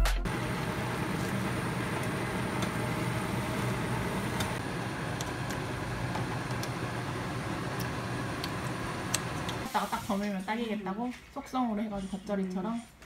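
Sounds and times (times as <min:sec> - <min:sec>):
water boiling in a pot: 0:00.3 - 0:10.7
stove hissing: 0:00.3 - 0:11.0.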